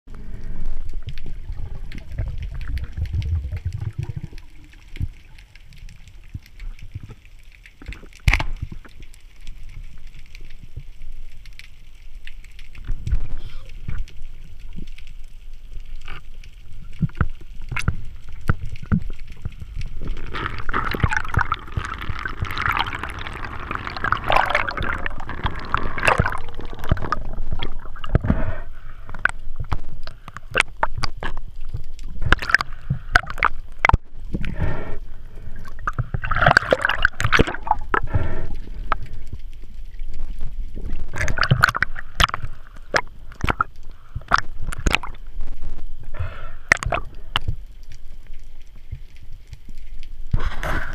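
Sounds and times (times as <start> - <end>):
muffled underwater gurgling: 0.1 - 5.2, 16.8 - 39.1
bubbly hiss: 19.6 - 31.4.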